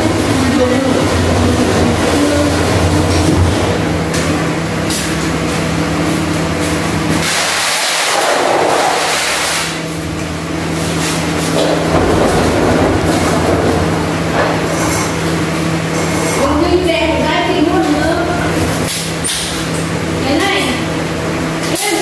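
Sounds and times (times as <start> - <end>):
oven mechanical hum: 0.0 - 7.4, 8.1 - 22.0
rushing noise: 10.7 - 16.5.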